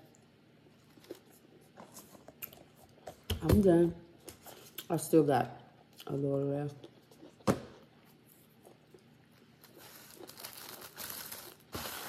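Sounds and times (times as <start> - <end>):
paper napkin crumpling: 9.6 - 12.0.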